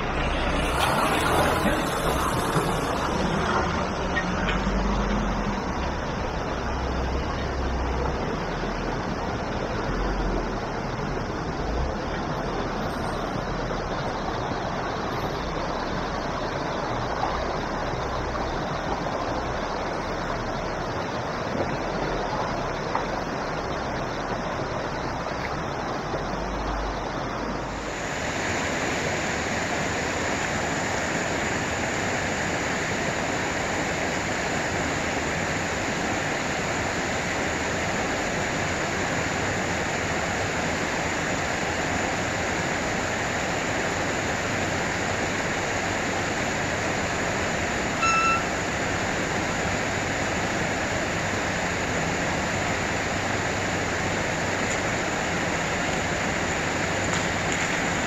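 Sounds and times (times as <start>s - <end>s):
creek water rushing over rocks: 0.0s - 58.0s
short electronic beep: 48.0s - 48.6s.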